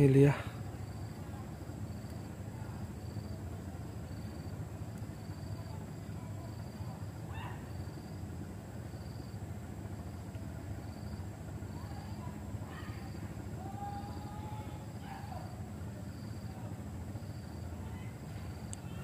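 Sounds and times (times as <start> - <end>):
insect chirping: 0.0 - 19.0
low hum: 0.0 - 19.0
distant animal calls: 7.2 - 8.1, 17.6 - 19.0.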